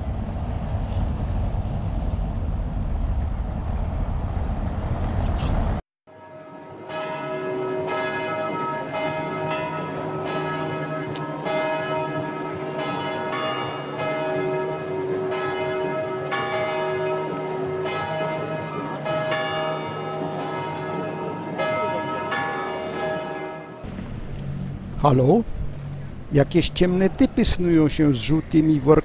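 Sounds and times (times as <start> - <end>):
church bells ringing: 6.1 - 23.9.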